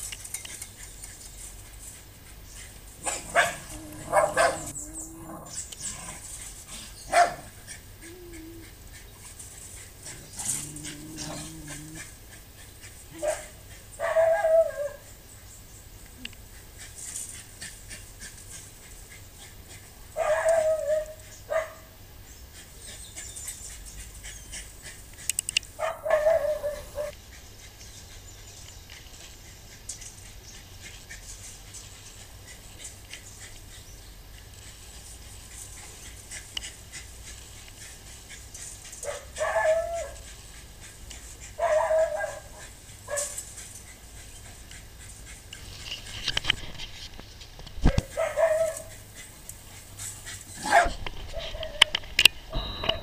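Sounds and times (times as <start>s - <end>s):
dogs barking: 3.0s - 5.5s, 7.1s - 7.7s, 13.1s - 15.1s, 20.1s - 21.9s, 25.7s - 27.2s, 39.0s - 43.5s, 47.9s - 49.4s, 50.5s - 52.0s.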